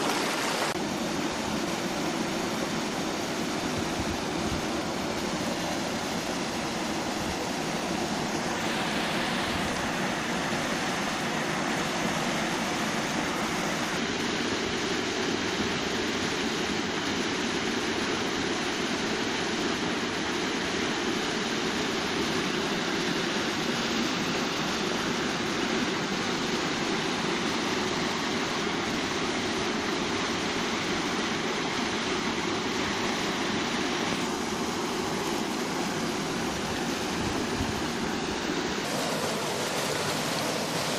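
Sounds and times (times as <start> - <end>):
waterfall rushing into pool: 0.0 - 40.9.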